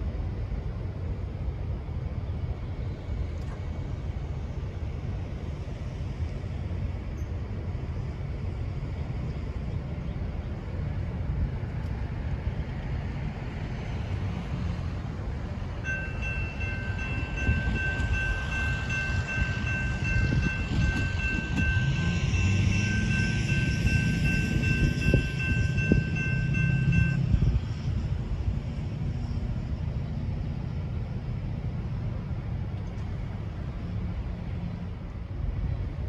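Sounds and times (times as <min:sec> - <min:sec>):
diesel locomotive rumble: 0:00.0 - 0:36.0
bell ringing: 0:15.9 - 0:27.2.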